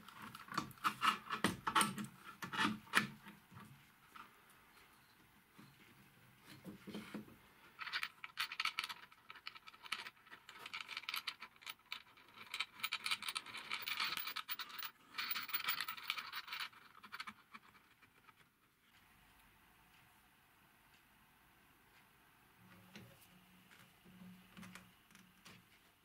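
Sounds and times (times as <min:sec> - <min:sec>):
scratchy clicking and scraping on metal: 0:00.0 - 0:04.3.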